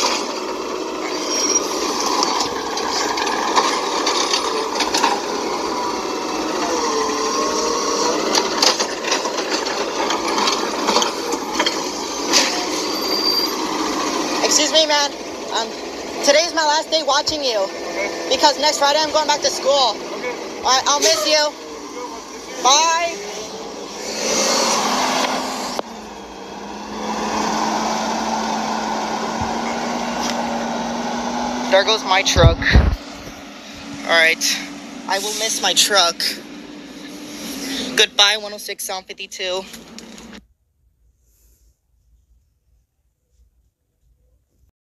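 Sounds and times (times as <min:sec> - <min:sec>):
cart banging: 0:00.0 - 0:25.8
hydraulic whine: 0:00.0 - 0:38.6, 0:39.5 - 0:40.4
truck engine and hydraulics humming: 0:00.0 - 0:40.4
steady hum: 0:31.7 - 0:38.4.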